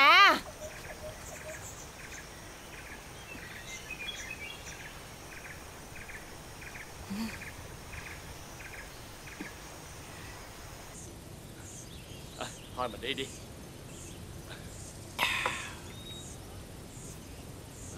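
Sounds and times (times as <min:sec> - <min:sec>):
higher chirps: 0:00.0 - 0:02.0.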